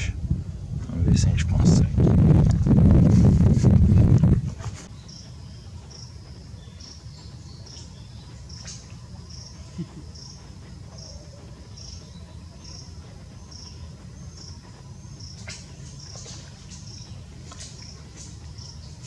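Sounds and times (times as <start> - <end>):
faint low rumble: 0.0 - 19.0
insect chirping: 4.9 - 19.0.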